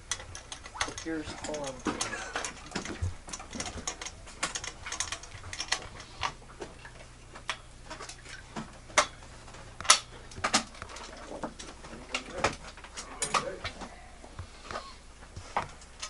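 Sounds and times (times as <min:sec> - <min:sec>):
equipment clicks and knocks: 0:00.0 - 0:13.8
low electrical hum: 0:00.0 - 0:16.0.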